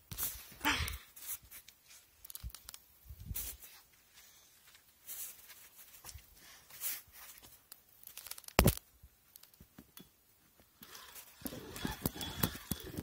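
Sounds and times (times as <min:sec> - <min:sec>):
rustling and crackling: 0:00.0 - 0:13.0
small clicks: 0:01.6 - 0:02.9, 0:07.7 - 0:13.0.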